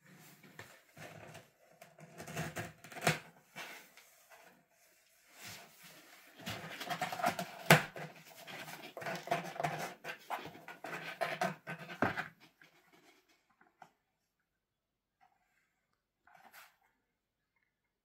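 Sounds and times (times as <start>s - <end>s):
cat claws scratching cardboard: 6.5s - 13.2s.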